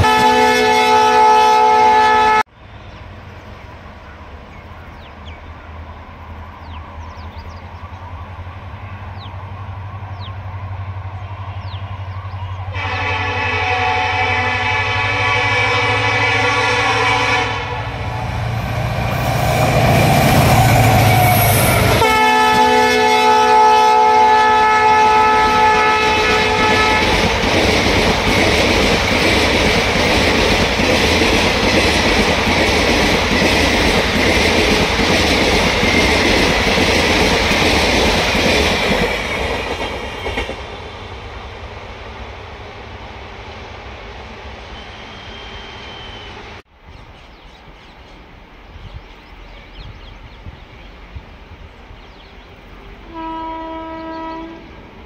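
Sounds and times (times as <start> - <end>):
train horn blowing: 0.0 - 2.5, 12.7 - 18.2, 19.9 - 27.3, 44.8 - 46.4, 53.0 - 54.8
diesel locomotive engine rumbling: 0.0 - 55.0
train wheels clattering: 26.0 - 41.0.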